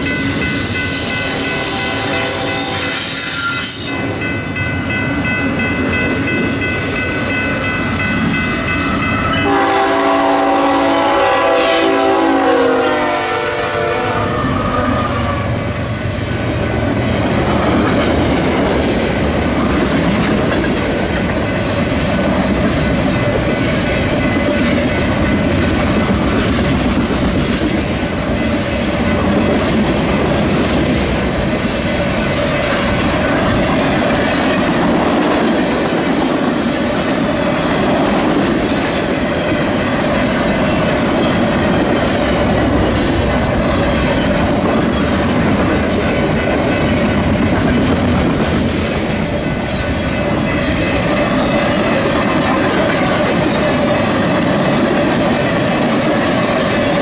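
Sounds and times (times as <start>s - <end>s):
freight train wheels clattering: 15.7s - 57.0s.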